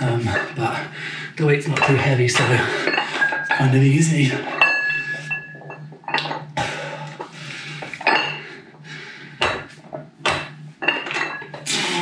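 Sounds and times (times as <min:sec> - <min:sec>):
dumbbell plates clinking: 0:01.7 - 0:08.8, 0:09.4 - 0:11.6.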